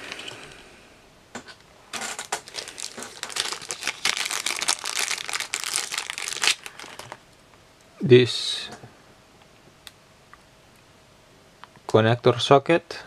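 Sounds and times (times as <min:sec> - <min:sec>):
crinkling rustling handling: 0:01.9 - 0:07.2.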